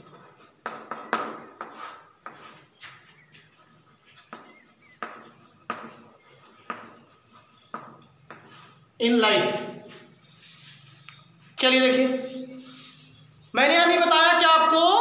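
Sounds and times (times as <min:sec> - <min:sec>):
chalk tapping on blackboard: 0:00.0 - 0:08.8.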